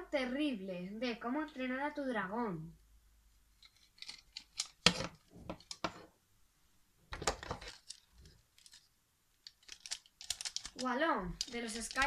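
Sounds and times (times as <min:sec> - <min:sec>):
plastic toys clicking on wooden shelf: 0:09.4 - 0:12.0.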